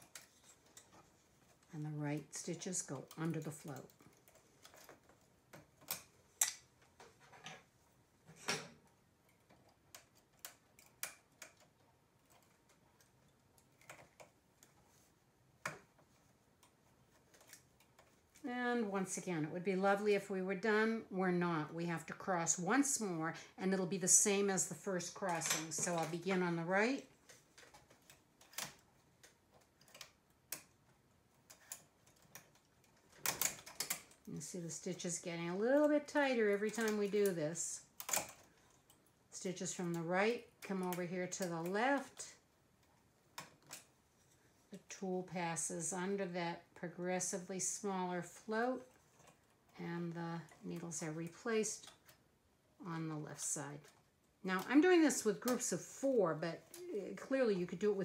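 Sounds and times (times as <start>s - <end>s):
knitting machine needles clicking: 24.0s - 42.3s.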